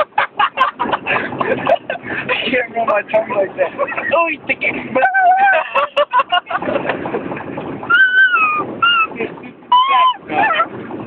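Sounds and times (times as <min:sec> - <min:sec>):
voices making high nonsense noises: 0:07.9 - 0:10.7.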